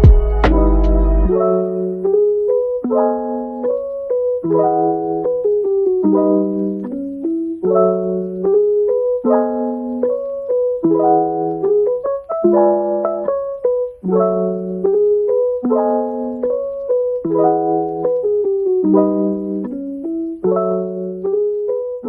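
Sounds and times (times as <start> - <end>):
steady low note: 0.0 - 1.3
soft piano chords: 0.0 - 22.0.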